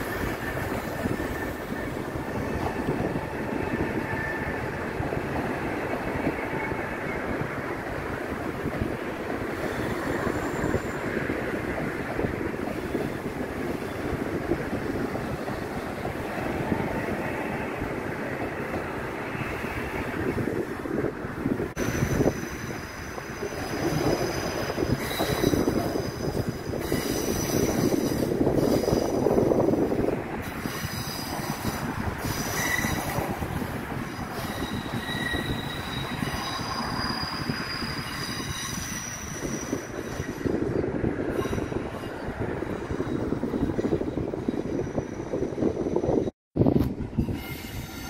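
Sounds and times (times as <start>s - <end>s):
train wheels squealing: 0.0s - 7.4s, 9.6s - 11.4s, 21.8s - 46.3s, 47.1s - 48.0s
rumble of wheels on rail: 0.0s - 48.0s.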